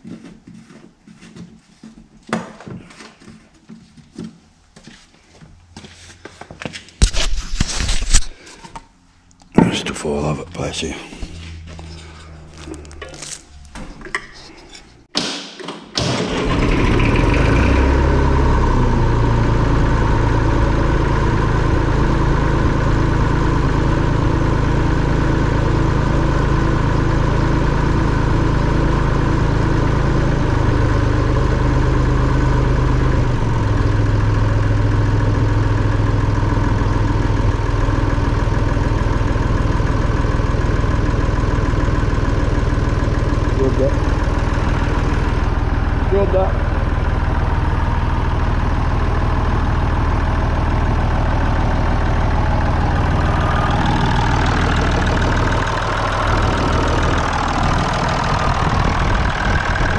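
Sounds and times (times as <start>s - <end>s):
diesel engine starting and idling: 15.1s - 59.9s.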